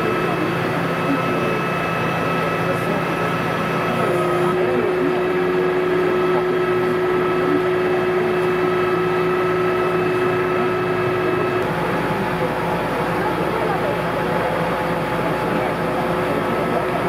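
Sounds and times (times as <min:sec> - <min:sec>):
heavy diesel engine running: 0:00.0 - 0:17.0
steady whine: 0:00.0 - 0:17.0.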